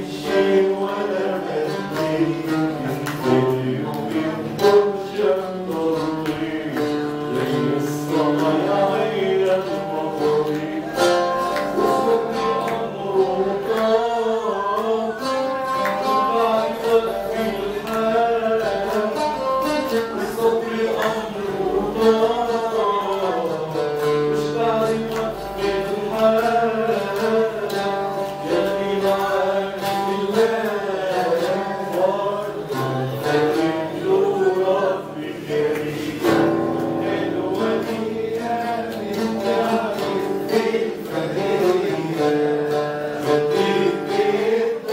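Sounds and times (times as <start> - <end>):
guitar plucked and strummed: 0.0 - 44.9
man singing: 0.0 - 44.9.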